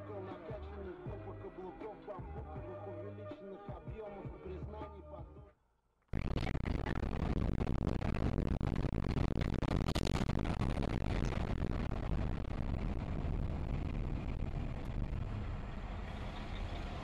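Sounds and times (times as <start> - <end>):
road and engine noise in car: 12.0 - 17.0.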